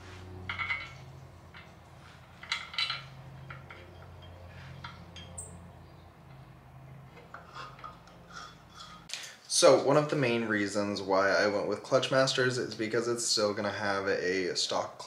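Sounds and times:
light metal clinks: 0.4s - 5.8s.

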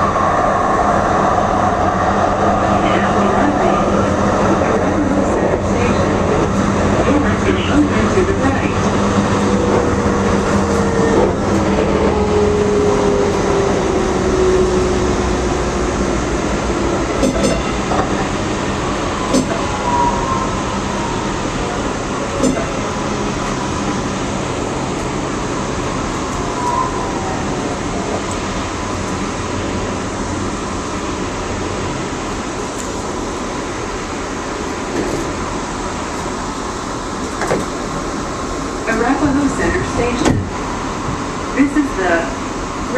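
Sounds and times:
train wheels rumbling on track: 0.0s - 42.9s
sharp clicks from rails: 17.2s - 18.1s, 19.3s - 19.7s.

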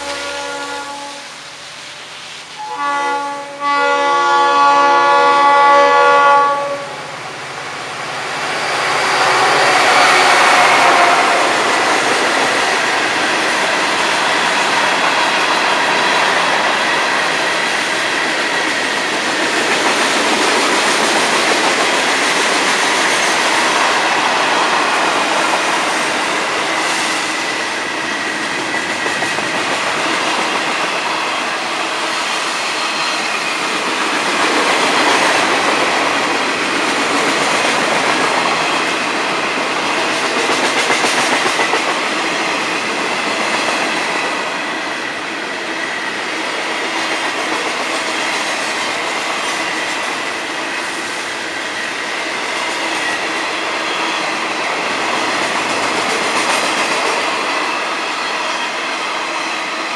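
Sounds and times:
train horn chord: 0.0s - 1.4s, 2.6s - 7.0s, 9.3s - 11.7s
train wheels rolling on rail: 0.0s - 59.9s.

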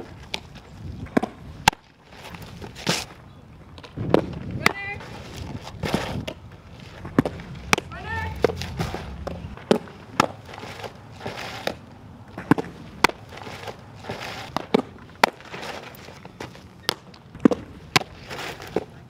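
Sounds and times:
softballs smacking into gloves: 14.5s - 15.6s, 16.4s - 18.9s.

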